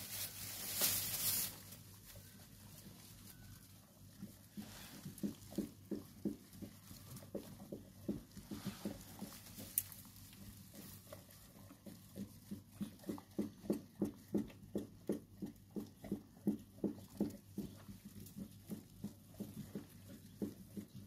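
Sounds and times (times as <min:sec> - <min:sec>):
dog breathing rhythmically: 0:04.1 - 0:21.0.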